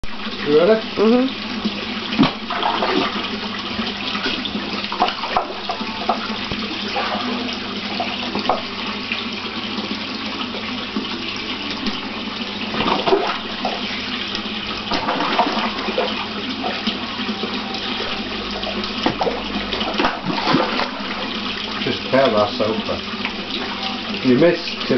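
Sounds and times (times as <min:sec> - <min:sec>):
water rushing into pond: 0:01.5 - 0:09.3, 0:12.0 - 0:24.9
fish splashing at surface: 0:02.1 - 0:08.8, 0:12.7 - 0:17.1, 0:18.0 - 0:21.8.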